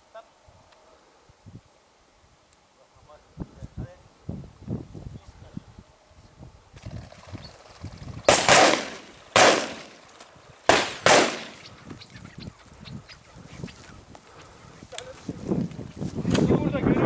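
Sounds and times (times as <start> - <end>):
shotgun shots with echo: 8.3 - 10.0, 10.7 - 11.6.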